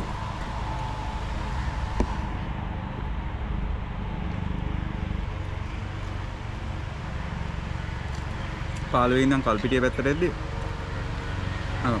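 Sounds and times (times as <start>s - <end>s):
electric fan running: 0.0s - 8.8s.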